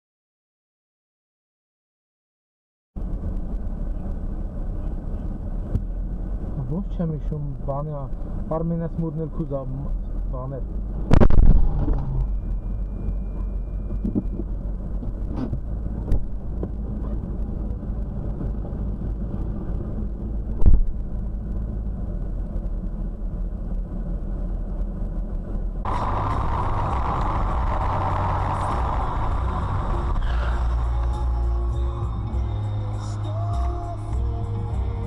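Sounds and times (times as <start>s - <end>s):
car engine hum: 3.0s - 35.0s
engine and road noise: 3.0s - 35.0s.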